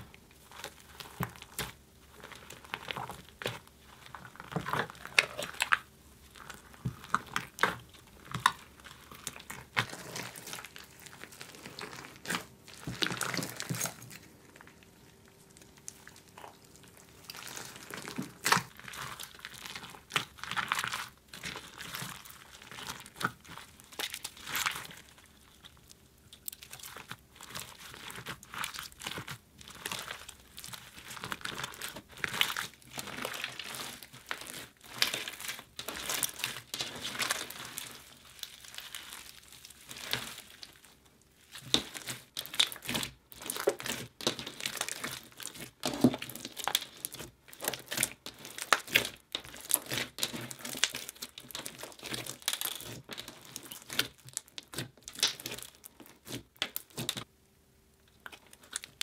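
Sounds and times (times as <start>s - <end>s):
slime clicks and crackles: 0.0s - 57.3s, 58.1s - 59.0s.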